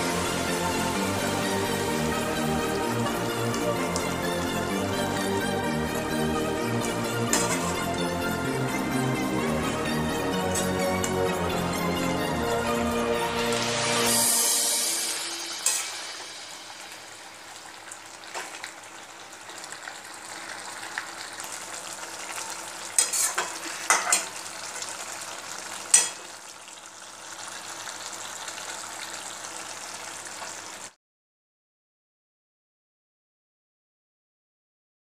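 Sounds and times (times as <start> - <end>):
food sizzling in a wok: 0.0 - 31.0
metal spatula scraping a pan: 7.3 - 8.1, 10.3 - 11.3, 15.4 - 16.3, 23.0 - 24.4, 25.9 - 26.3.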